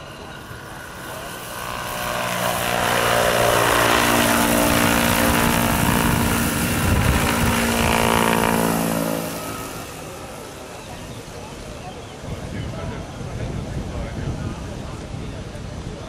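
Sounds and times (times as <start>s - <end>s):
model helicopter drive whine: 0.0s - 12.2s.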